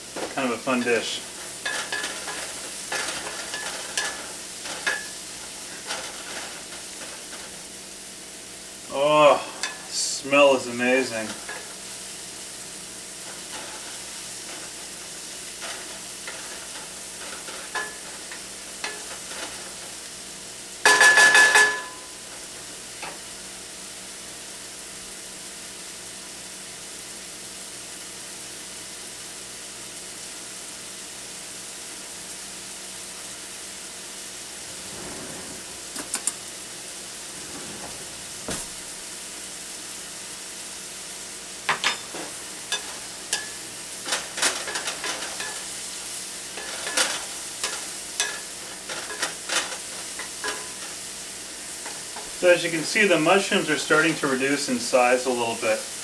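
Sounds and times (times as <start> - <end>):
mushrooms sizzling in a skillet: 0.0 - 56.0
wooden spatula scraping and stirring: 1.0 - 7.7, 13.2 - 19.9, 34.6 - 39.1, 42.1 - 45.9, 46.5 - 51.0.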